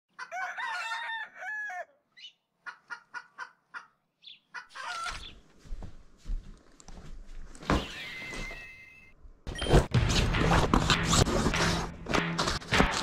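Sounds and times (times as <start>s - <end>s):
rooster crowing: 0.2s - 2.0s
chicken clucking: 2.2s - 5.4s.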